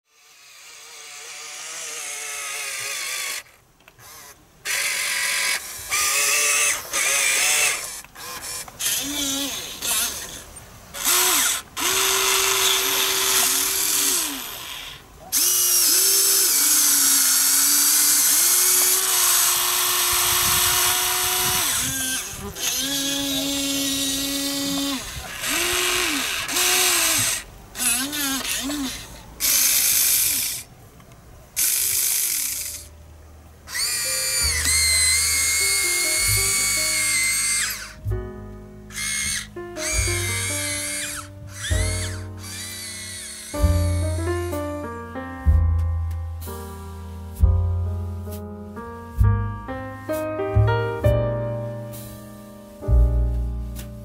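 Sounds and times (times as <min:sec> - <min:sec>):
toy excavator motors whining: 0:00.1 - 0:33.0, 0:33.7 - 0:38.0, 0:38.9 - 0:44.6.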